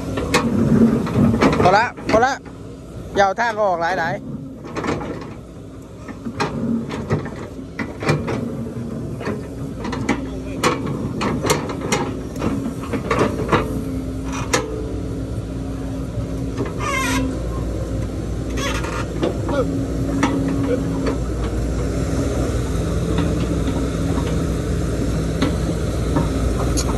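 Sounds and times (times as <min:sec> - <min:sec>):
diesel engine hum: 0:00.0 - 0:26.9
metallic clanks and knocks: 0:00.1 - 0:02.6, 0:04.6 - 0:05.4, 0:06.0 - 0:14.8, 0:18.5 - 0:21.6.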